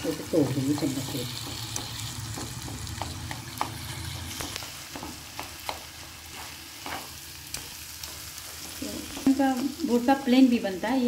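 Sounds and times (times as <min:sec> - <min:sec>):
frying hiss: 0:00.0 - 0:11.0
spatula tapping and scraping pan: 0:00.7 - 0:09.4.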